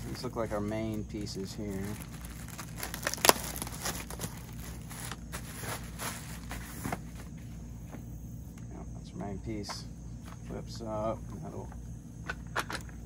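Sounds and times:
plastic packaging crinkling: 0.0s - 7.2s.

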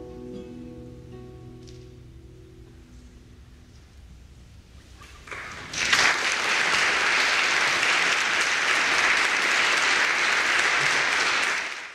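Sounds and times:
audience applauding: 5.2s - 11.9s.

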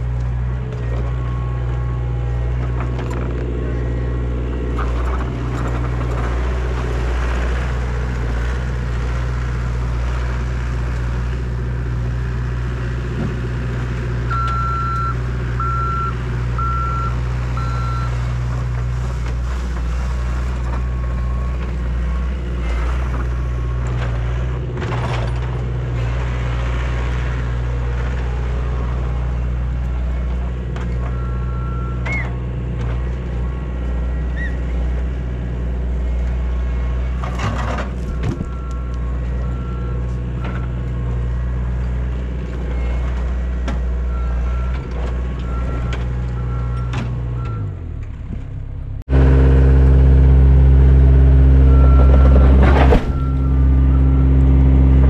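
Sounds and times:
loader engine running under load: 0.0s - 55.0s
backup alarm beeping: 14.3s - 18.1s.

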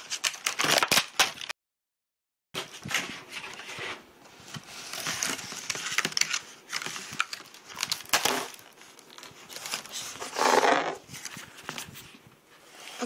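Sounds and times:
plastic wrapping crinkling: 4.4s - 12.2s.

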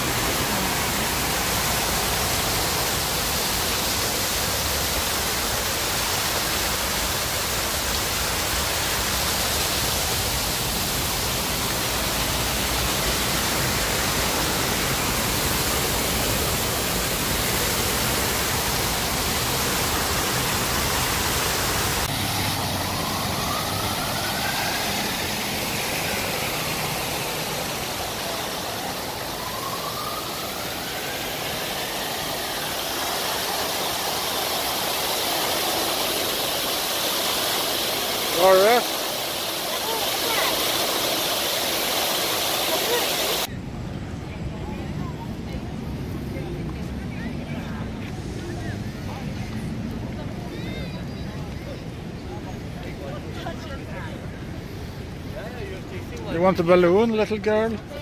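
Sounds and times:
city traffic: 0.0s - 58.0s
fountain water cascading: 0.0s - 58.0s
whine rising and falling: 21.6s - 42.5s.

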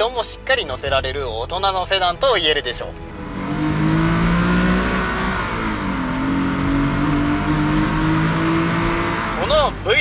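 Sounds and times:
tyre and road noise: 3.0s - 9.7s
car engine accelerating: 3.0s - 9.8s.

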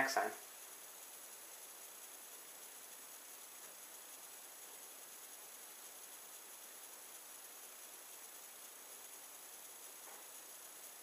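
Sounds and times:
faint steady hiss: 0.0s - 11.0s.

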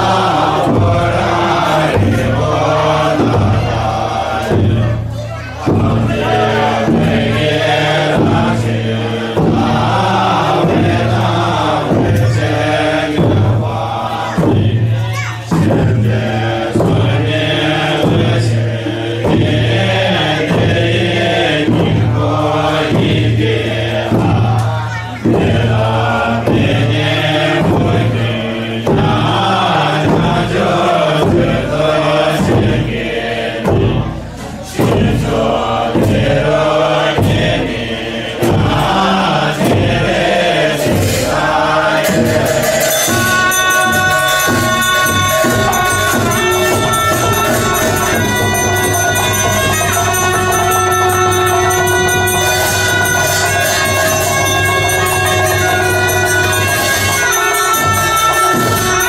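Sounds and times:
men chanting in unison: 0.0s - 59.0s
ringing tones: 41.5s - 59.0s.

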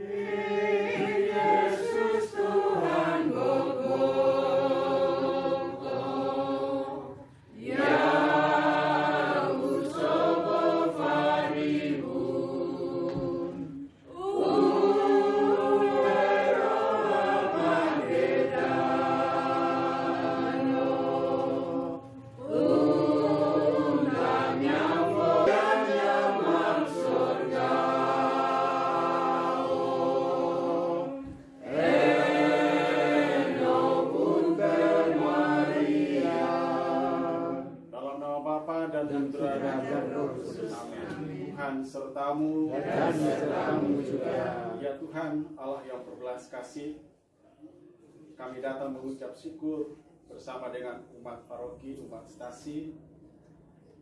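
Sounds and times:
choir singing: 0.0s - 38.0s, 38.8s - 45.1s.

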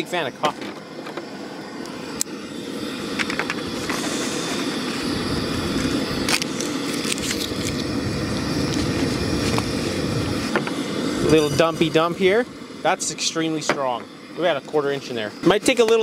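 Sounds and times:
wind buffeting microphone: 5.0s - 6.4s, 7.1s - 12.8s.

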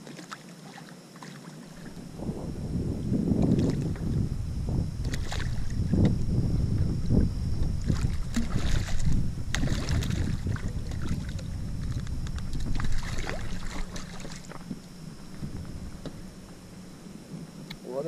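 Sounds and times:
fish splashing in water: 0.0s - 2.1s, 5.0s - 5.9s, 7.7s - 15.0s
wind rumble on microphone: 1.7s - 18.0s.

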